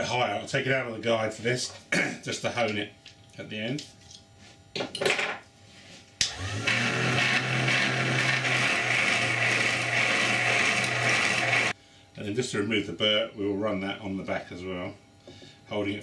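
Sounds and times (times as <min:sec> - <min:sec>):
motor hum: 0:06.2 - 0:11.8.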